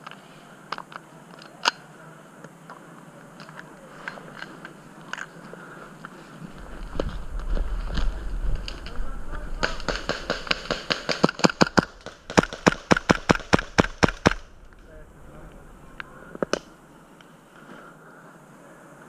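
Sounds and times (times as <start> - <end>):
lone clicks: 0.0 - 9.0, 9.6 - 17.7
rapid airsoft gun cracks: 9.6 - 14.5.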